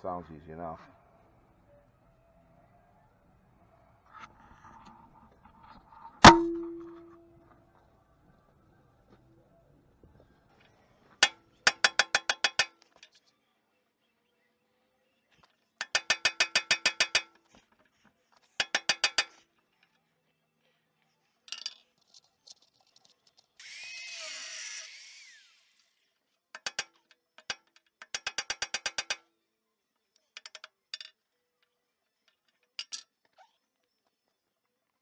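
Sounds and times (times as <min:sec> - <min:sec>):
hammer striking steel punch: 0:06.2 - 0:07.2.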